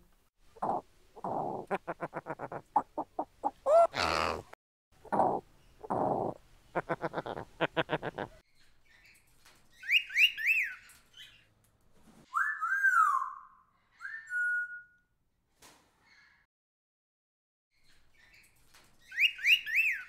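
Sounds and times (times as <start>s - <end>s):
parrot clucking notes: 0.6s - 8.4s
parrot harsh call: 3.7s - 4.5s
parrot whistles: 12.3s - 15.0s.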